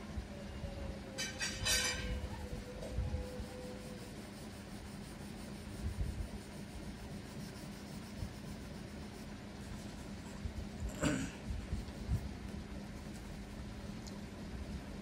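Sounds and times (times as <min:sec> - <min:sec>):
low steady hum: 0:00.0 - 0:15.0
pencil scratching on paper: 0:03.7 - 0:10.4.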